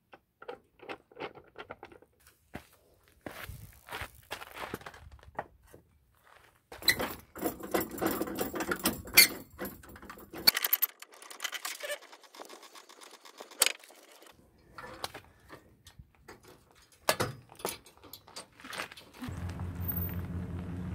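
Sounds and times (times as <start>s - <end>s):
metal chains clinking and rattling: 6.8s - 14.3s.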